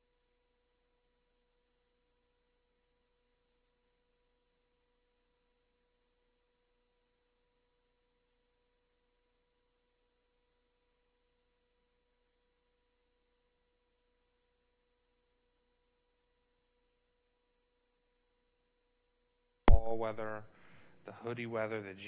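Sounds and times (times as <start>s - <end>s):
faint electronic tones: 19.7s - 20.4s
low hiss: 19.7s - 22.0s.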